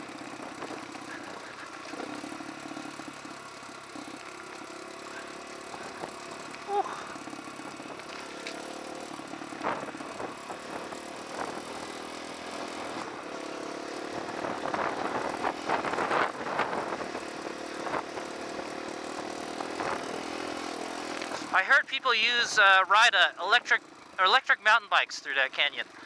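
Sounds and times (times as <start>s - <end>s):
dirt bike engine running: 0.0s - 26.0s.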